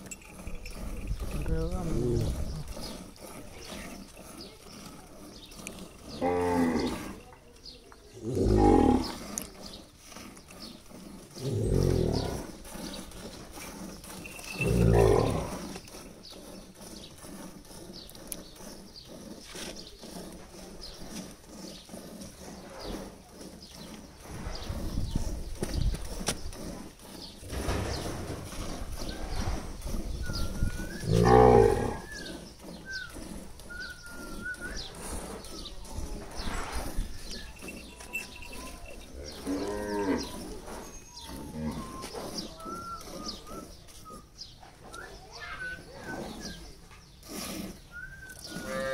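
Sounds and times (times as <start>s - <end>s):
cattle mooing: 6.0s - 7.2s, 8.2s - 9.2s, 14.2s - 15.6s, 30.6s - 32.3s, 37.2s - 43.4s, 48.4s - 48.9s.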